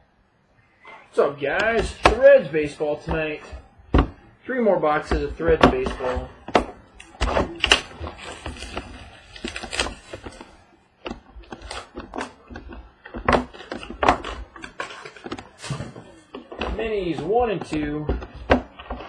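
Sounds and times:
shrink wrap crinkling: 5.8 - 10.8.

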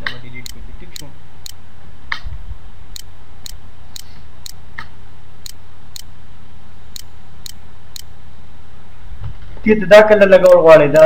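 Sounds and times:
steady low hum: 0.0 - 11.0
light regular ticking: 0.3 - 1.6, 2.9 - 4.6, 5.4 - 6.1, 6.9 - 8.1.

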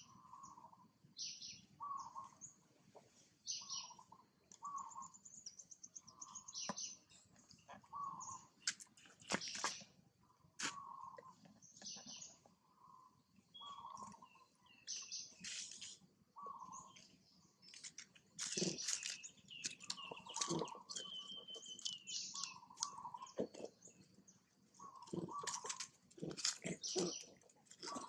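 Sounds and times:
dry leaves crackling: 17.8 - 20.6
monkeys squeaking and chirping: 18.4 - 23.7, 24.9 - 28.0.

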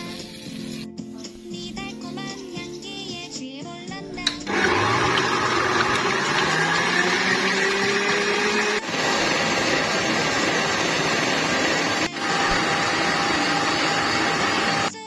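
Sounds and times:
stand mixer whirring: 4.3 - 14.9.

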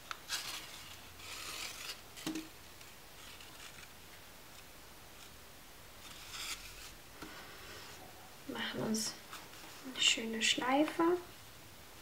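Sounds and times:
paper rustling: 0.0 - 5.4.

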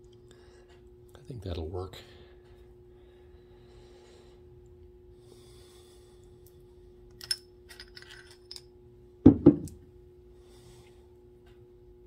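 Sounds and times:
faint steady hum: 0.0 - 12.0
metal parts clicking and clinking: 7.1 - 8.7.

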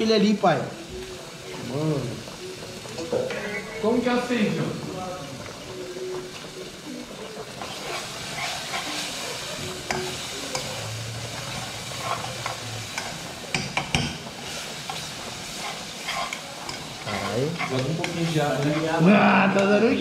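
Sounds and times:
food sizzling: 0.0 - 20.0
steam hissing: 0.0 - 20.0
spoon clacking against pot: 7.6 - 10.8, 11.5 - 14.3, 14.9 - 18.8
spoon scraping in a pot: 7.6 - 13.2, 14.4 - 19.0.

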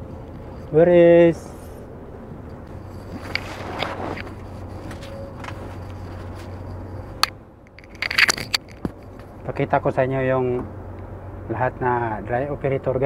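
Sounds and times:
diesel truck engine idling: 0.0 - 8.0
handling knocks and scuffs: 2.7 - 7.4.

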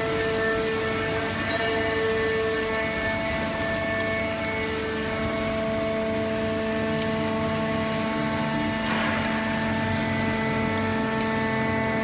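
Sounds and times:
hydraulic baler whining hum: 0.0 - 12.0.

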